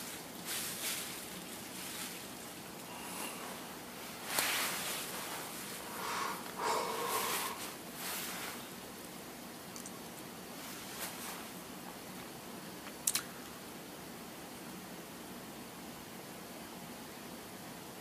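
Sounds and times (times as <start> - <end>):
person breathing through nose: 2.9 - 3.6, 5.8 - 7.8.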